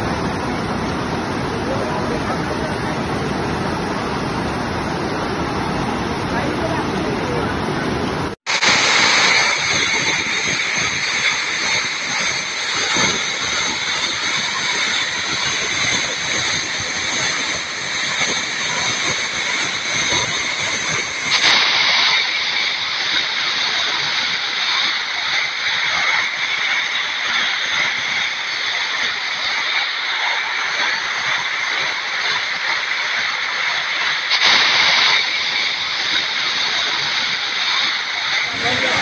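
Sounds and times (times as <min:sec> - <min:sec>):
rushing floodwater: 0:00.0 - 0:39.0
waterfall pouring over rocks: 0:08.5 - 0:39.0.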